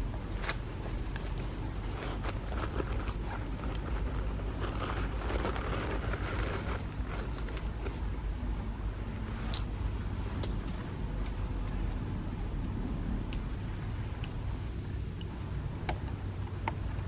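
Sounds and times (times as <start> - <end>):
faint rustles and ticks: 0.0 - 8.6
steady low rumble: 0.0 - 17.0.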